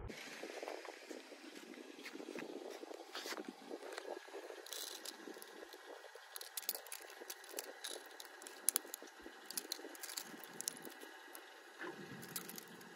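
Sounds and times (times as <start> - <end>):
plastic pens clicking and rattling: 3.9 - 11.4, 12.2 - 12.9.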